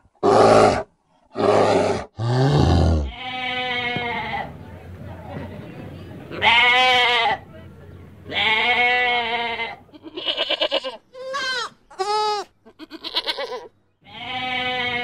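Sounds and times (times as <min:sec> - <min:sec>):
goats bleating: 0:03.0 - 0:04.6, 0:06.3 - 0:07.4, 0:08.3 - 0:15.0.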